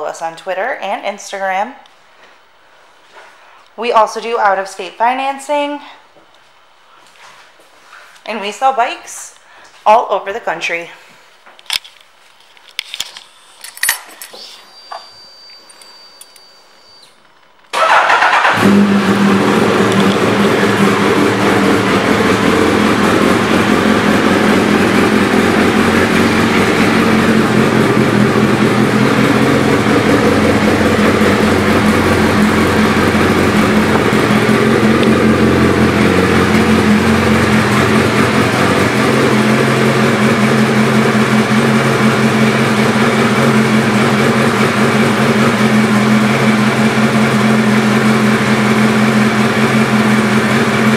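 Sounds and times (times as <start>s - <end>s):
motorcycle engine idling: 17.8s - 50.9s.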